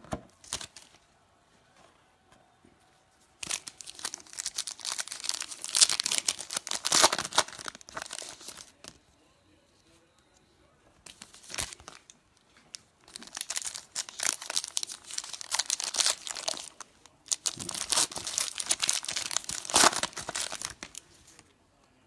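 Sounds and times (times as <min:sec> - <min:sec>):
foil wrapper crinkling and tearing: 0:03.4 - 0:08.9, 0:11.1 - 0:12.1, 0:13.0 - 0:21.4.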